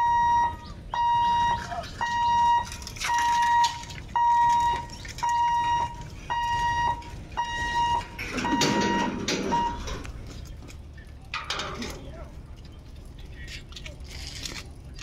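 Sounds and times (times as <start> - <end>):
level crossing buzzer beeping: 0.0 - 9.9.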